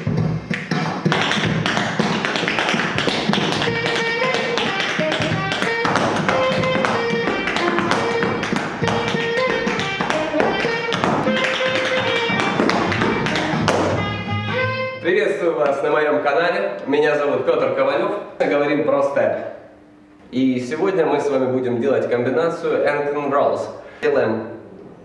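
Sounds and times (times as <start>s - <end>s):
background music: 0.0s - 15.6s
tap shoes striking floor: 0.5s - 14.6s.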